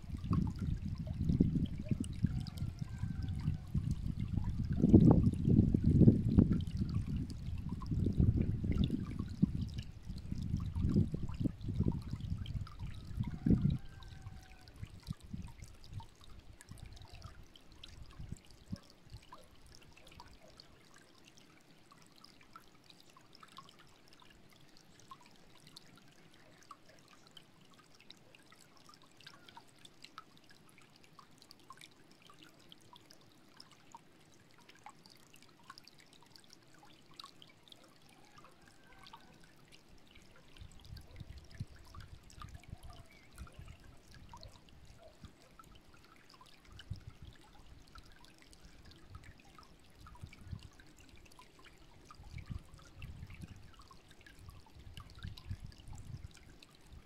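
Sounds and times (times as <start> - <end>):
wind rumbling on microphone: 0.0 - 16.1, 18.0 - 18.8, 40.6 - 45.1, 46.7 - 47.4, 50.0 - 50.8, 52.2 - 57.0
stream trickling over stones: 0.0 - 57.0.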